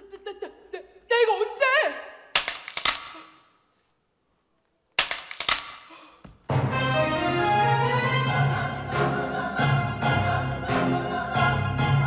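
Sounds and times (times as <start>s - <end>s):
sharp cracking bursts: 2.3s - 3.5s, 4.9s - 6.0s.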